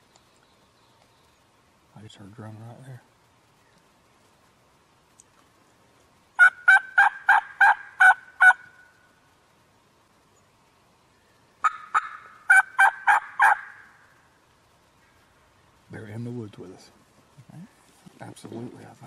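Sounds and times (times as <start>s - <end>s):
turkey yelping: 6.4s - 9.0s, 11.6s - 14.2s.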